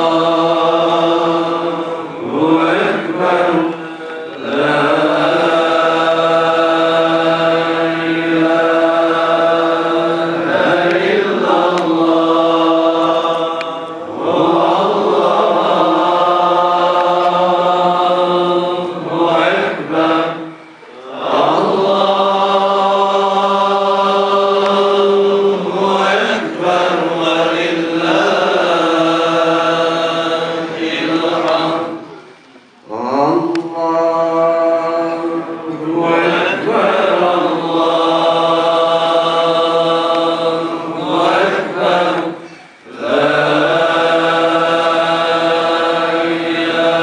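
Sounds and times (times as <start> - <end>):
man chanting into a microphone: 32.9 - 35.8.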